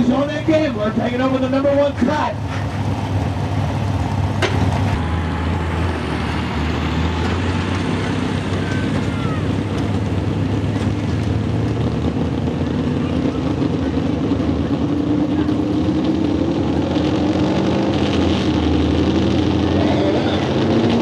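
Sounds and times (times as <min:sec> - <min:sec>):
tractor engine idling: 0:00.0 - 0:16.0.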